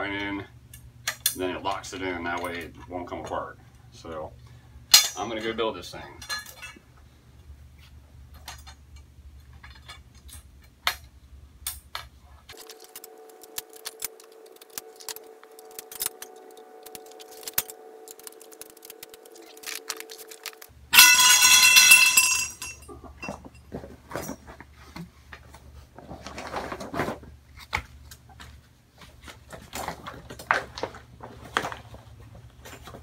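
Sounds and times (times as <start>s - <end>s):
metal poles clinking: 4.9s - 5.6s, 6.2s - 6.8s, 14.8s - 24.4s
loud pitched ringing: 12.6s - 22.8s.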